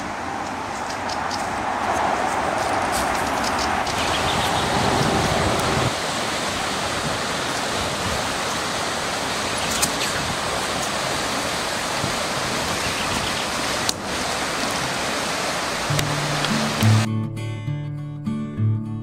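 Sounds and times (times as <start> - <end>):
fast-flowing stream: 0.0 - 17.1.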